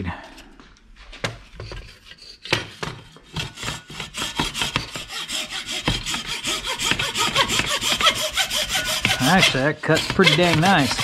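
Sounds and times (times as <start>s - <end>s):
hacksaw sawing plastic: 1.6s - 11.0s
saw blade knocks: 6.9s - 11.0s.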